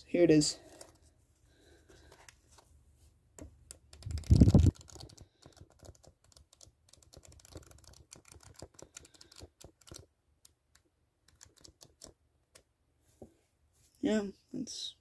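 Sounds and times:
flipbook pages flicking: 3.9s - 10.1s.

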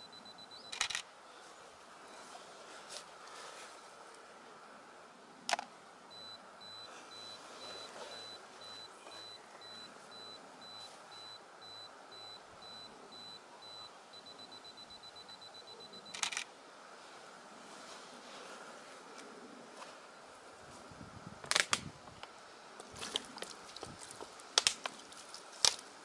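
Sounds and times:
self-timer beeps: 0.0s - 1.0s, 6.1s - 16.3s
camera shutter clicks: 0.7s - 1.1s, 16.1s - 16.5s.

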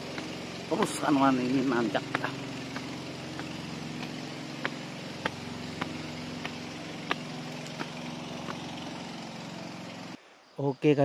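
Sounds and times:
low motor hum: 0.0s - 10.2s
footsteps climbing steps: 2.0s - 8.7s.

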